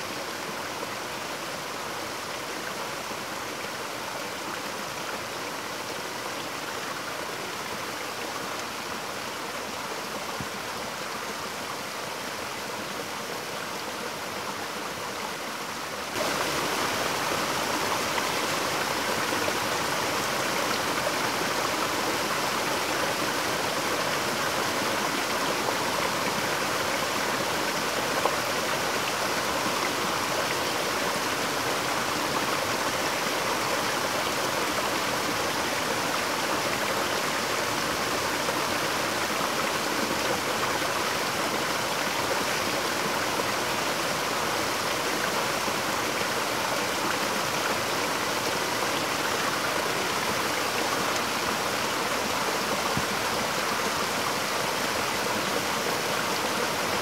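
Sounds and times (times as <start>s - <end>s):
waterfall rushing onto boulders: 15.3s - 57.0s.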